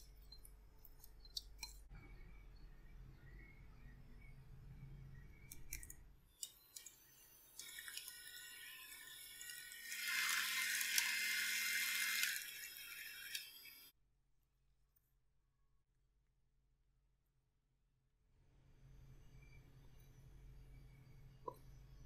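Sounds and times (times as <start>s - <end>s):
electric hand mixer beating batter: 7.6s - 13.9s.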